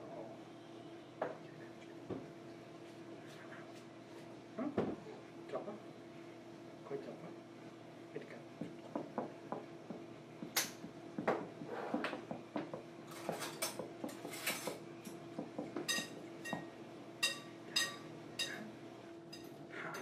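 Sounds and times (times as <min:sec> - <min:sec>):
faint steady hum: 0:00.0 - 0:20.0
dishes and utensils clinking: 0:13.0 - 0:18.7, 0:19.3 - 0:20.0.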